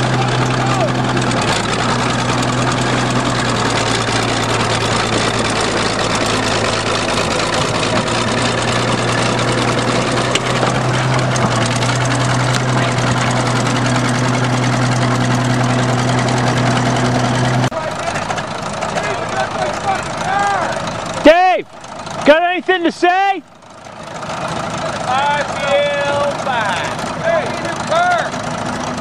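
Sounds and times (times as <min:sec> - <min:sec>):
bulldozer engine running: 0:00.0 - 0:29.0
steel tracks rolling over car: 0:00.0 - 0:29.0.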